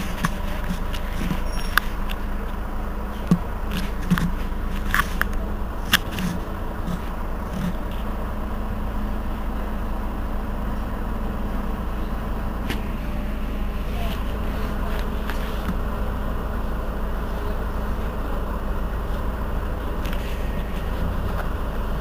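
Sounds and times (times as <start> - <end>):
sharp clicks and knocks: 0.0 - 2.2, 3.2 - 8.0
bus engine idling: 0.0 - 22.0.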